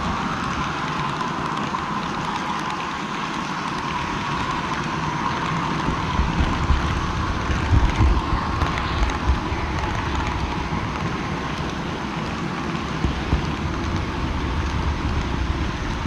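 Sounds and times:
model train rumbling: 0:00.0 - 0:16.0.

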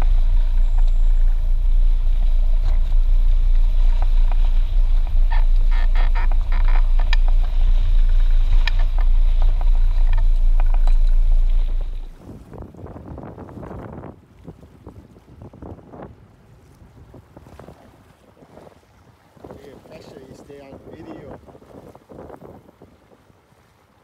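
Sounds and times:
boat engine droning: 0:00.0 - 0:24.0
wind noise on microphone: 0:00.0 - 0:24.0
sharp clicks: 0:02.6 - 0:12.1.

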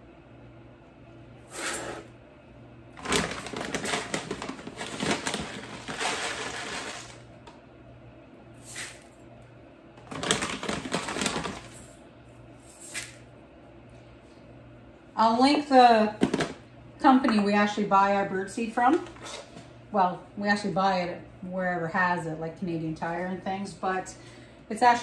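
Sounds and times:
plastic bag crinkling: 0:03.0 - 0:07.2, 0:10.0 - 0:11.9
seed rattling into bowl: 0:03.0 - 0:07.2.

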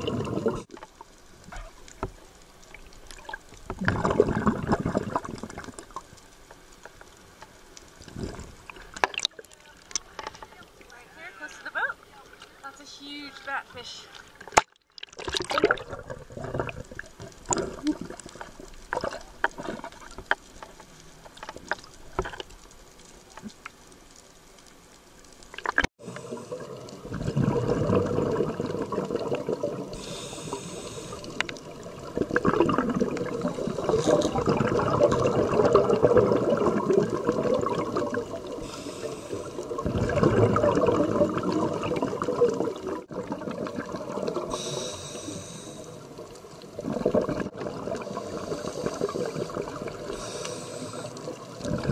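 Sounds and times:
exhaled air bubbles: 0:00.0 - 0:02.1, 0:02.7 - 0:06.2, 0:08.0 - 0:09.4, 0:14.4 - 0:20.3, 0:25.5 - 0:51.9
faint underwater crackling: 0:00.0 - 0:51.9
regulator hissing: 0:30.0 - 0:31.4, 0:44.5 - 0:46.0.

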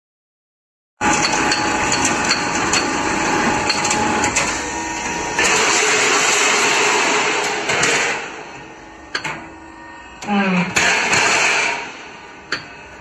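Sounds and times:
roll forming machine clattering: 0:01.0 - 0:05.8.

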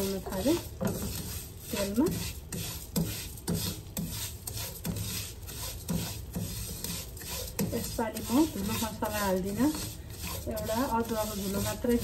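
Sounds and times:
wooden spoon scraping a wok: 0:00.0 - 0:12.0.

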